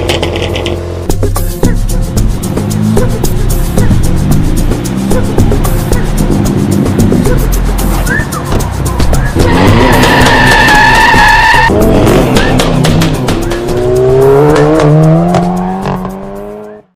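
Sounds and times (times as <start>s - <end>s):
car engine revving: 0.0s - 16.9s
music with steady beat: 1.0s - 17.0s
car tyres screeching: 2.8s - 16.7s.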